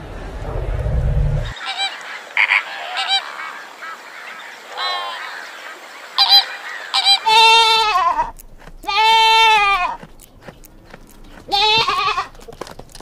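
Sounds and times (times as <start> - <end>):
flamingos honking: 1.5 - 9.8.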